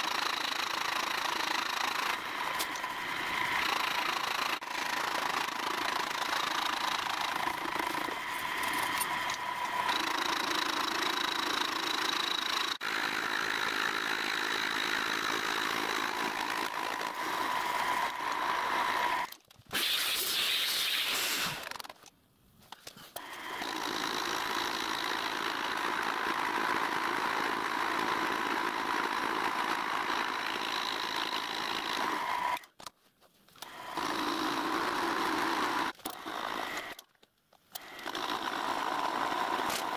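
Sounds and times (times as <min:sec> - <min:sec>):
milling machine cutting metal: 0:00.0 - 0:13.4
steady machine whine: 0:01.6 - 0:12.6.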